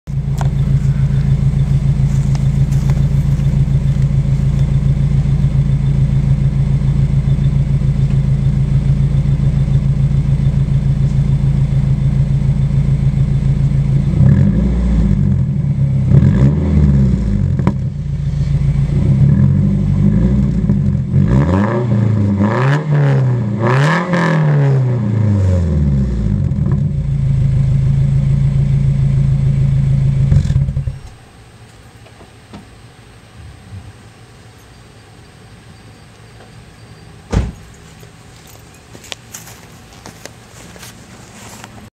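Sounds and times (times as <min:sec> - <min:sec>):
car engine idling: 0:00.1 - 0:21.2, 0:25.6 - 0:31.6
engine revving throttle blips: 0:00.1 - 0:31.4.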